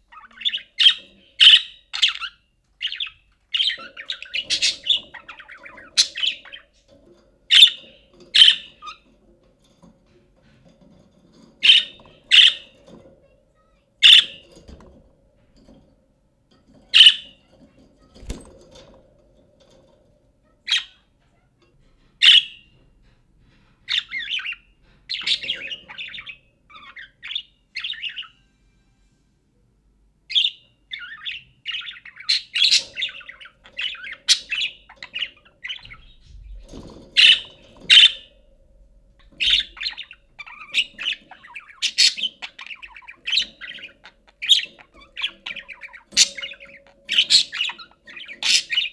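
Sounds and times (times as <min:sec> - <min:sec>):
budgerigar chirping and warbling: 0:00.1 - 0:06.7, 0:07.5 - 0:09.0, 0:11.6 - 0:12.8, 0:14.0 - 0:14.5, 0:16.9 - 0:17.4, 0:22.2 - 0:22.6, 0:30.3 - 0:36.2, 0:37.2 - 0:38.3, 0:39.4 - 0:48.9.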